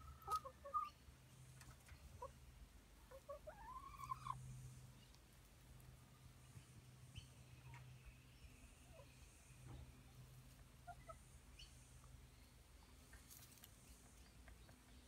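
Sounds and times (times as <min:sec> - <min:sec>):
hens clucking: 0:00.0 - 0:07.9, 0:08.8 - 0:12.3, 0:12.9 - 0:15.0.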